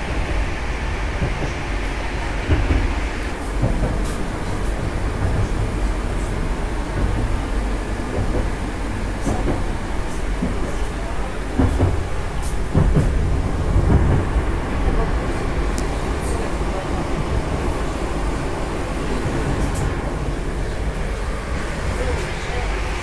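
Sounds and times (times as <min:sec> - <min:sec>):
train knocks: 0:00.0 - 0:23.0
train wheels rumbling: 0:00.0 - 0:23.0.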